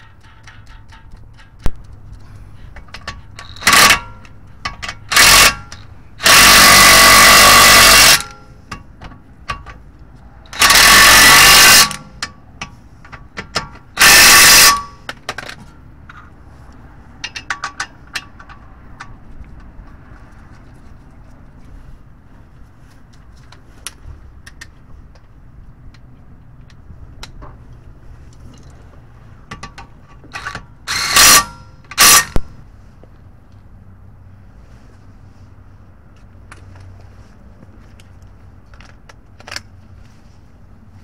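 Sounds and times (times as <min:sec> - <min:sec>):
impact wrench bursts: 0:03.4 - 0:08.5, 0:10.5 - 0:12.3, 0:13.9 - 0:15.1, 0:30.3 - 0:32.5.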